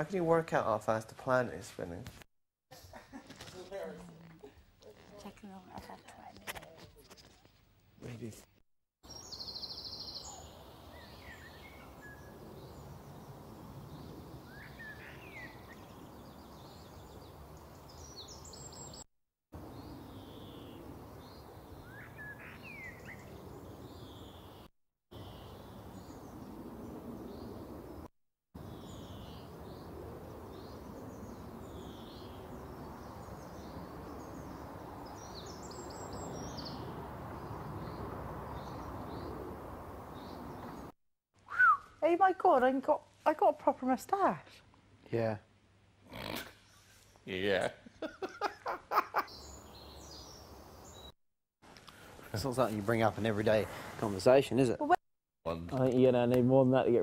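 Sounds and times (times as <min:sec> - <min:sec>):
small birds chirping: 0:09.0 - 0:41.0, 0:48.3 - 0:51.2.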